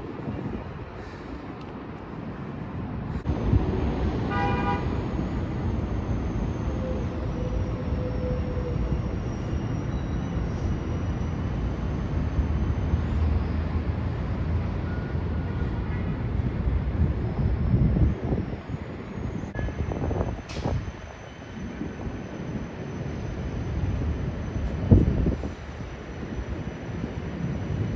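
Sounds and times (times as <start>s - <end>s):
traffic rumble: 0.0s - 27.9s
vehicle horn toot: 4.3s - 4.9s.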